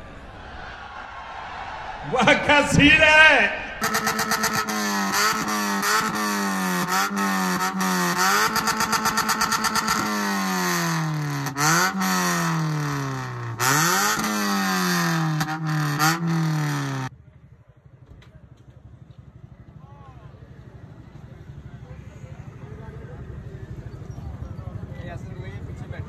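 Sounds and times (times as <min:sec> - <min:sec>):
car engine revving: 0:00.0 - 0:17.1
exhaust crackles and pops: 0:03.7 - 0:17.1.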